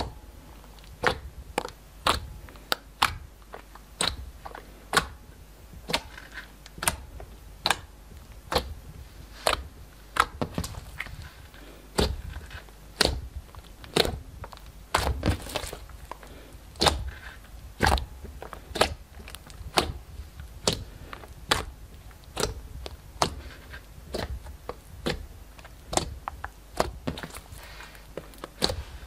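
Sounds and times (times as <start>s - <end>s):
wet slime clicks and pops: 1.0s - 4.3s, 22.3s - 23.4s.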